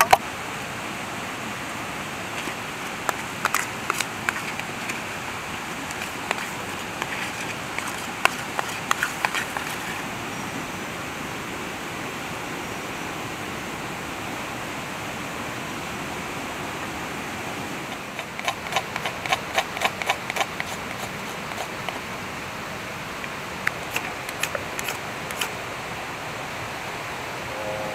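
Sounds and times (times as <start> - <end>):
river rushing: 0.0 - 27.9
sharp clicks and knocks: 2.4 - 5.0, 17.9 - 22.0.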